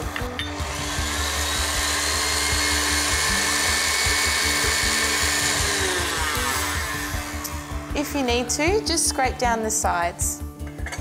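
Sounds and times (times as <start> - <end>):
stand mixer motor whining: 0.0 - 8.6
whisk beating batter: 0.6 - 8.1.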